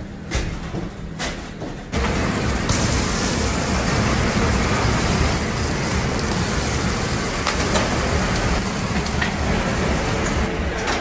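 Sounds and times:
burger patty sizzling on grill: 2.0s - 10.5s.

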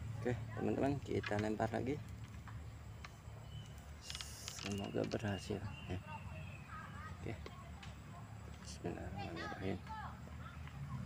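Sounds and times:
faint high chirp: 2.9s - 7.4s.

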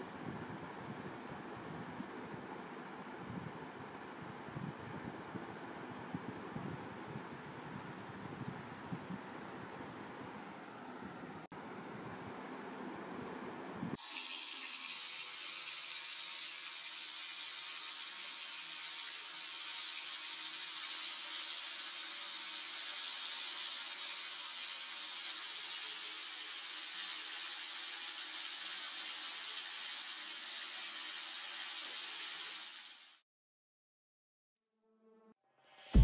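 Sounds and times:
water running from tap: 14.0s - 33.2s.

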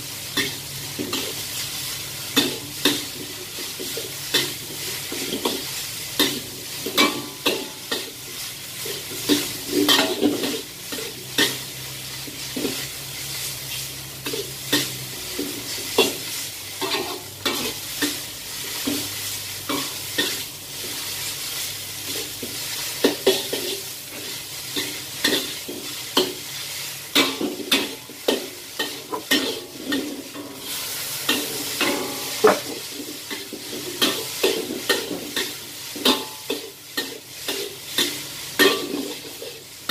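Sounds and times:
noodles sizzling in a wok: 0.0s - 39.9s
metal spatula scraping wok: 27.1s - 39.9s.

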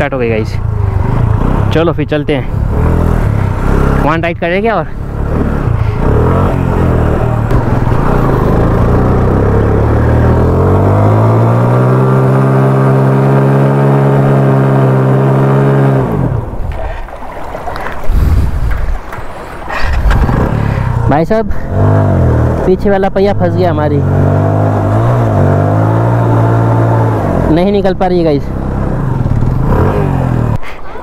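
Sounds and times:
motorcycle engine revving: 0.0s - 16.9s, 19.7s - 30.6s.

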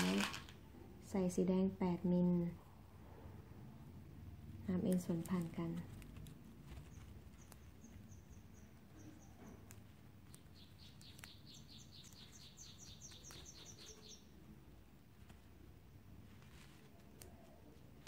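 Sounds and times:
bird chirping: 6.3s - 14.6s.

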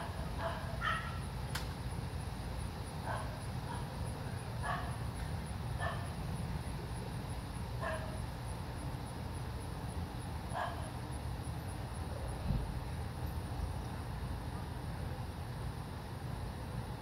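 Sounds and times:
dog barking: 0.3s - 1.2s, 3.1s - 3.9s, 4.6s - 5.0s, 5.8s - 6.1s, 7.8s - 8.2s, 10.5s - 10.9s.

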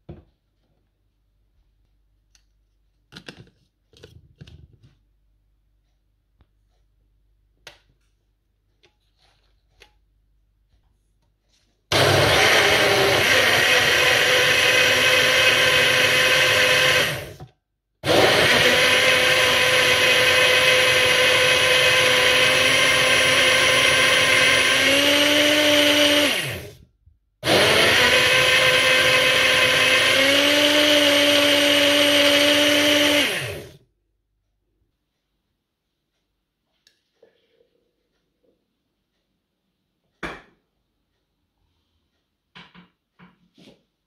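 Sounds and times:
blender motor whining: 11.9s - 17.4s, 18.0s - 26.8s, 27.4s - 33.8s.

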